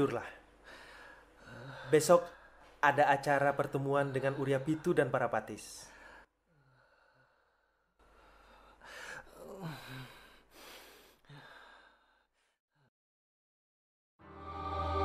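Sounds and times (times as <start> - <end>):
man sighing and breathing heavily: 8.1 - 12.2.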